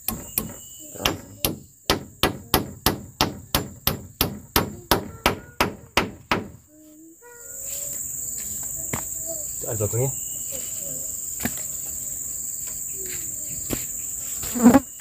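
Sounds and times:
hammer striking wood: 0.0s - 6.6s
insects droning: 0.0s - 15.0s.

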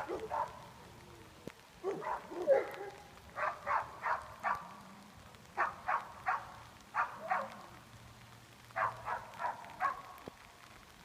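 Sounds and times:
dog barking: 0.0s - 0.7s, 1.8s - 4.8s, 5.6s - 7.6s, 8.8s - 10.2s.

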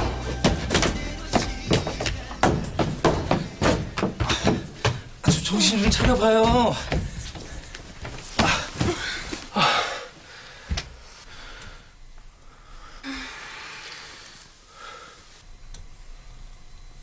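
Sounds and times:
person breathing hard: 3.2s - 5.2s, 6.7s - 15.4s.

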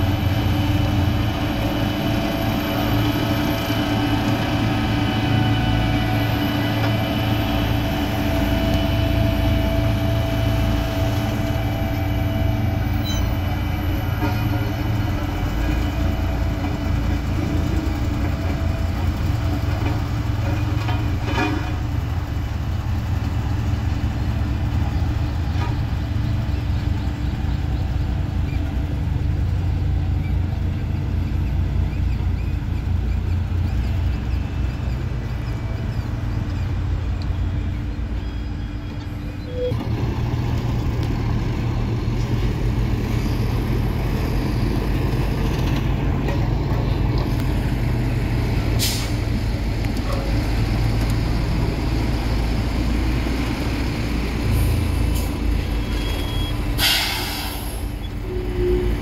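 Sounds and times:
heavy diesel machinery rumbling: 0.0s - 59.0s
short burst of hiss: 56.8s - 57.9s.

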